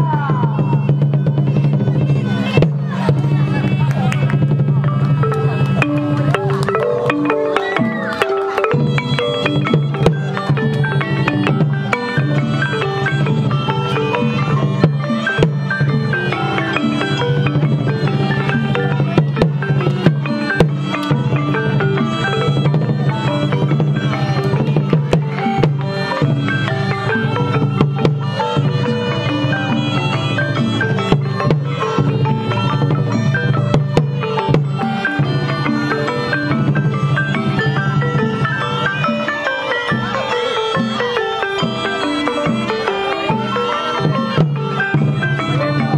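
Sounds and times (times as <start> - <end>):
steady drum: 0.0 - 39.2
sharp percussion strokes: 0.0 - 45.9
struck melody notes: 0.0 - 45.9
traditional ensemble music: 0.0 - 45.9.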